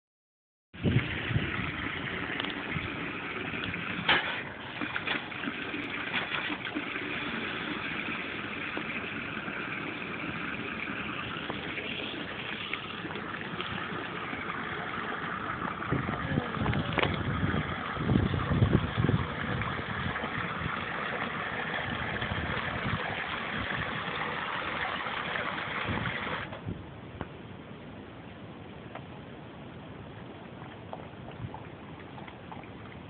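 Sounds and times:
water pouring into plastic basin: 0.8 - 26.5.

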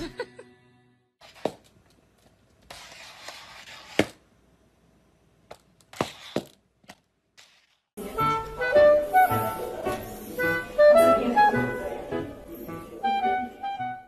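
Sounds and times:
music: 8.0 - 14.0.

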